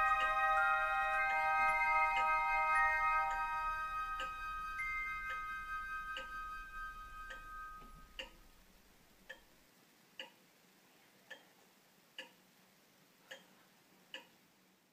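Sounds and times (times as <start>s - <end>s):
sustained music tones: 0.0s - 9.4s
clock ticking: 0.0s - 10.5s, 11.2s - 12.6s, 13.2s - 14.5s.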